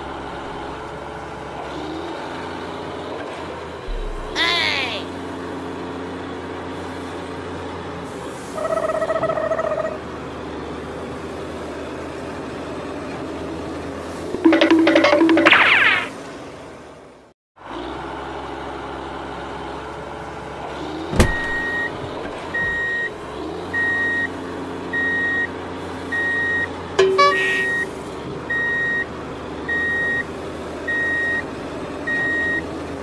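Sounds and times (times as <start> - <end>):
reversing beeper: 14.4 - 15.7, 27.0 - 27.9.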